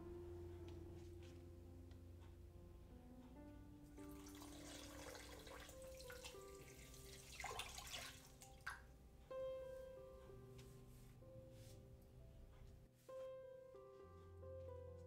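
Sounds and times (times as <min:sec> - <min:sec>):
soft plucked background music: 0:00.0 - 0:15.0
water pouring into a pot: 0:04.2 - 0:08.8.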